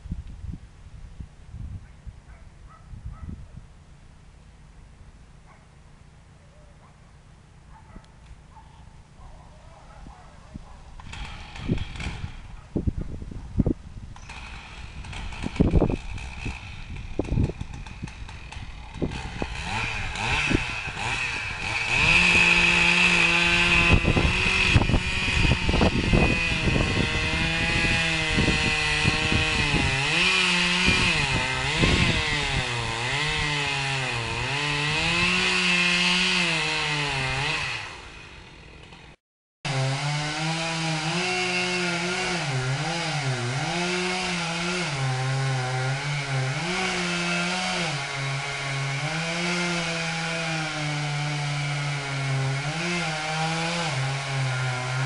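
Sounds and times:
chainsaw cutting wood: 10.9 - 13.0, 13.6 - 55.0.

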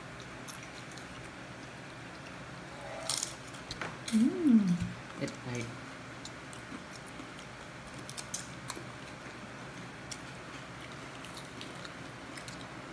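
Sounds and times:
pita chips crackling and breaking: 6.6 - 8.9, 10.0 - 12.7.

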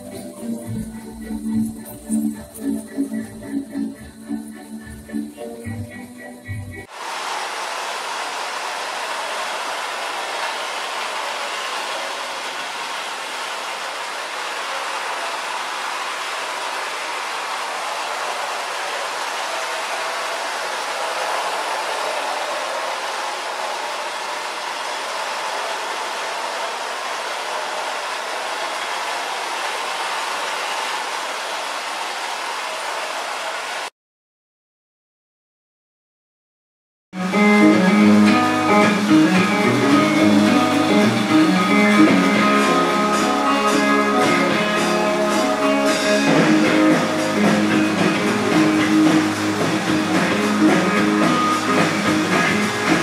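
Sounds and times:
toy train rolling on track: 6.8 - 33.9.

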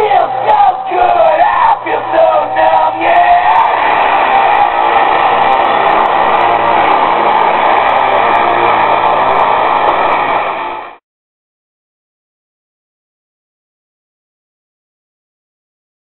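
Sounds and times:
steady rush of noise: 0.0 - 11.0.

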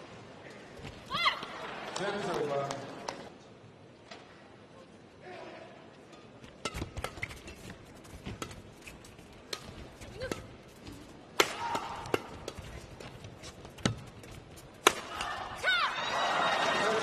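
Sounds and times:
rackets hitting shuttlecock: 6.5 - 13.0, 13.8 - 15.5.

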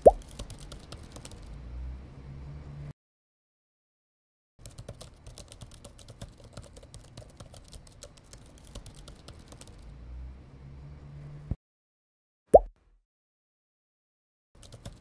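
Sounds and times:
typing clicks on smartphone: 14.6 - 15.0.

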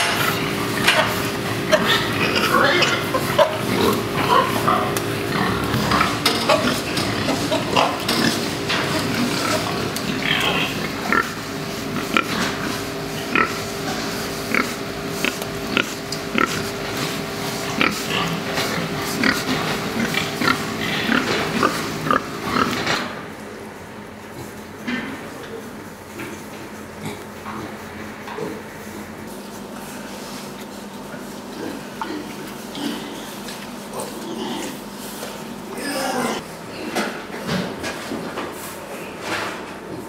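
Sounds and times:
pigs grunting: 0.0 - 23.4, 24.2 - 30.0, 30.8 - 40.0.

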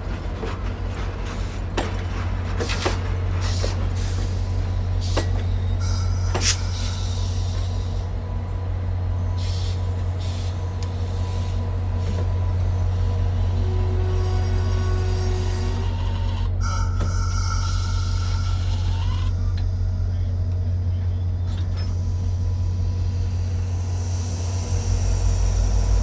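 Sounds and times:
train cars clanking: 0.0 - 22.9
train rolling with low rumble: 0.0 - 26.0
train air hisses: 2.6 - 8.2, 9.4 - 13.2, 16.6 - 19.1.

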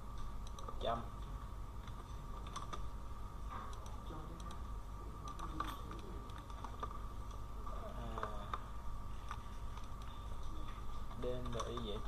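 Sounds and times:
steady background hum: 0.0 - 12.0
computer keyboard keystrokes: 1.8 - 2.8, 9.2 - 12.0.

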